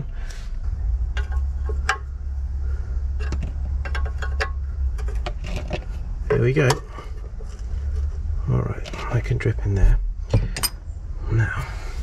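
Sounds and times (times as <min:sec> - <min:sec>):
low hum: 0:00.0 - 0:12.0
spanner clinking on metal: 0:03.2 - 0:07.0.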